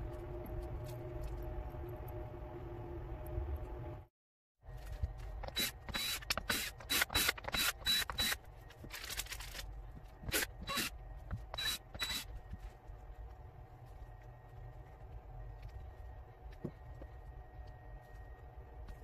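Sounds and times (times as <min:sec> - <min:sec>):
cordless drill whining: 0:05.4 - 0:08.4.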